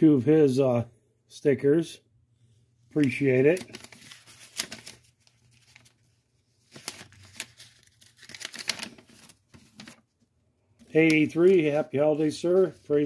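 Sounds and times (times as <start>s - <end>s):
paper crinkling: 2.9s - 13.0s.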